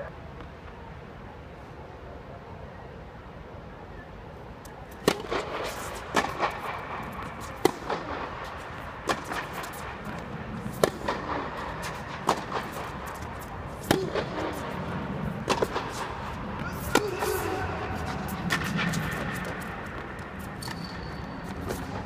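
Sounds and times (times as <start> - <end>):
tennis ball struck with racquets: 4.9 - 22.0.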